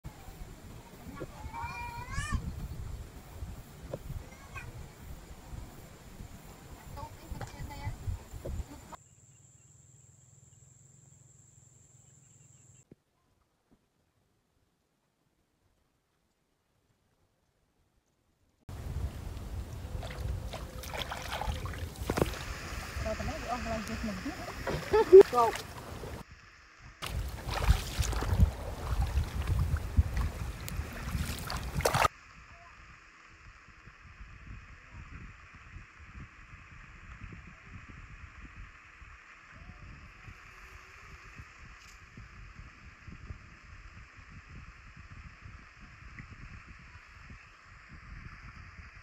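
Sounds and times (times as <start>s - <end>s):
wind buffeting microphone: 0.1s - 9.0s, 18.7s - 26.4s, 27.0s - 32.1s, 33.7s - 49.0s
weeds pulled from wet mud: 19.9s - 24.0s, 27.0s - 32.1s.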